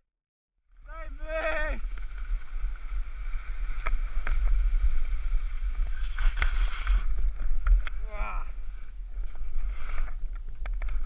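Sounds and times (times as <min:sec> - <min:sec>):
skis scraping over snow: 0:00.8 - 0:11.0
wind buffeting microphone: 0:00.8 - 0:11.0.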